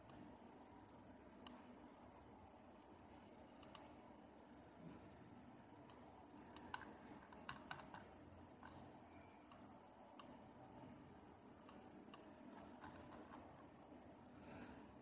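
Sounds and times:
low room hiss: 0.0s - 15.0s
computer mouse clicks: 1.4s - 1.7s, 3.1s - 4.0s, 5.8s - 10.4s, 11.6s - 13.7s.

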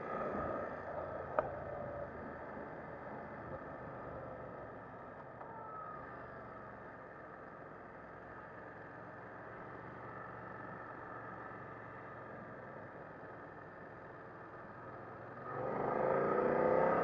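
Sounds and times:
wind and road rush: 0.0s - 5.4s
faint motorcycle engine: 0.0s - 17.0s.

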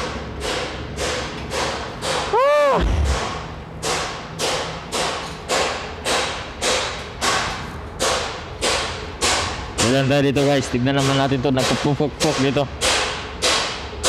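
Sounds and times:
echoing hammer blows: 0.4s - 4.6s.

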